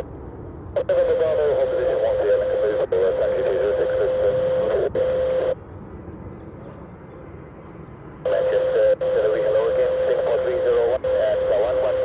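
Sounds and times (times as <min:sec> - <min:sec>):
steady tone: 0:00.8 - 0:05.6
tinny radio transmission: 0:00.8 - 0:05.6, 0:08.2 - 0:12.0.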